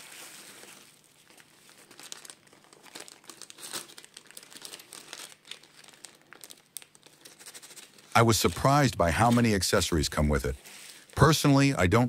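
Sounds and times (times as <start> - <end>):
plastic bags crinkling: 0.0 - 9.6.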